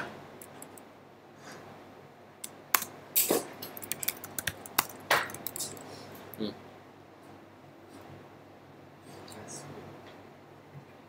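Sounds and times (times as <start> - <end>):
keyboard key clicks: 3.7 - 5.7.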